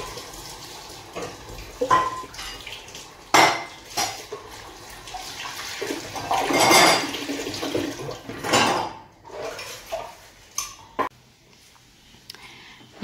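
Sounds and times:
water running: 0.0 - 11.1
dishes and cutlery clattering: 1.2 - 4.4, 6.2 - 7.3, 8.3 - 11.1.

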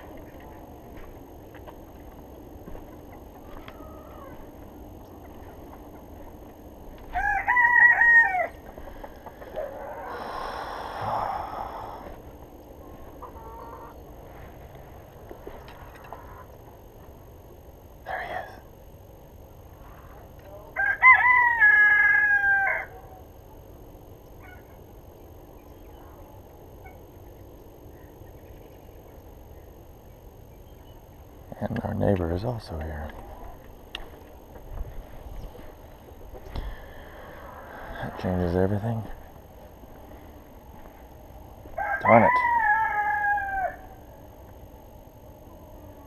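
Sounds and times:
rooster crowing: 3.4 - 4.6, 7.0 - 12.0, 20.5 - 23.2, 41.7 - 44.2.

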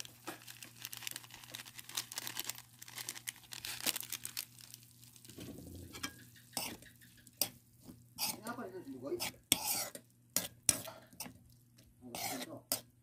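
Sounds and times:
foil sachet crinkling: 0.0 - 5.4.

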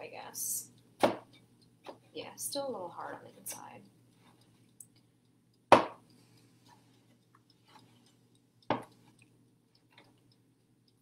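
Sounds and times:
faint steady hum: 0.0 - 11.0
knife chopping on cutting board: 1.0 - 1.3, 5.7 - 6.0.

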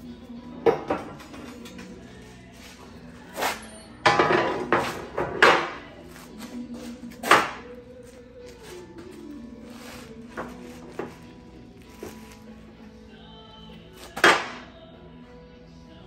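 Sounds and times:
metal scraping: 0.9 - 12.8.

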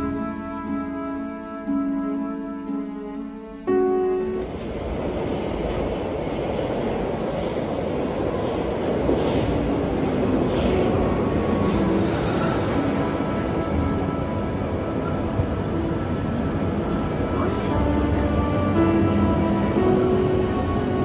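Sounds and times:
underground train arriving: 0.0 - 21.0
hiss: 11.6 - 14.0.

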